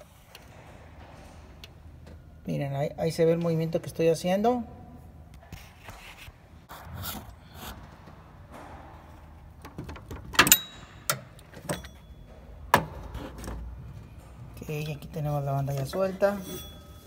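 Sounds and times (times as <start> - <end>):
metallic ringing: 10.4 - 13.0, 14.1 - 17.0.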